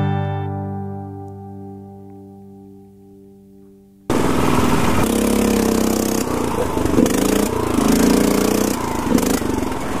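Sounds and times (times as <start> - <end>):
small mower engine revving: 4.1 - 10.0.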